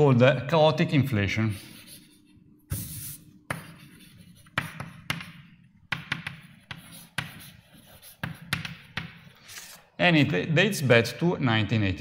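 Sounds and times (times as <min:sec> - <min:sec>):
scratchy writing stroke: 0:01.5 - 0:09.8
writing tool tapping a board: 0:04.4 - 0:09.3.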